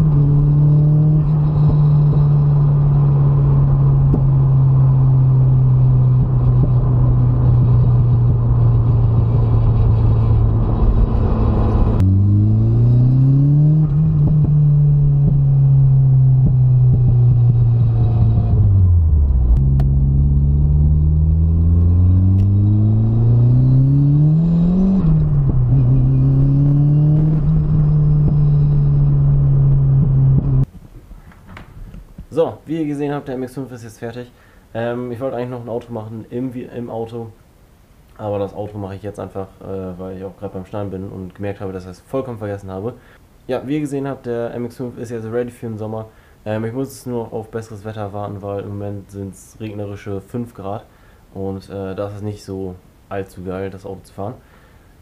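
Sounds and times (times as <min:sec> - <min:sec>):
car engine while driving: 0:00.0 - 0:30.7.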